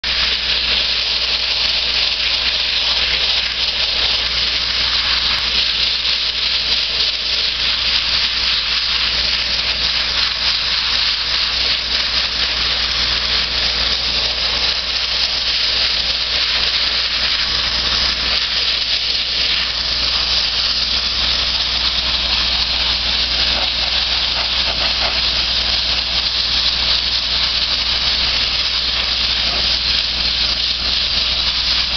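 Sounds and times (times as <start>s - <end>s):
blasting nozzle hissing: 0.1s - 31.9s.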